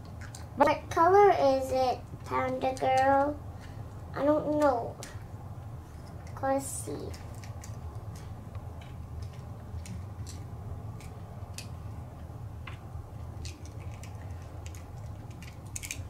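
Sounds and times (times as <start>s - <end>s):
low steady hum: 0.0s - 16.0s
toy egg shell crackling: 6.0s - 8.4s, 13.2s - 16.0s.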